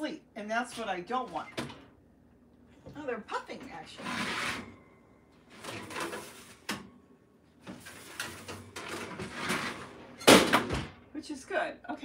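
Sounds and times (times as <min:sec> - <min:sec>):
oven rack scraping: 0:00.5 - 0:01.9, 0:03.1 - 0:07.0, 0:07.6 - 0:10.4.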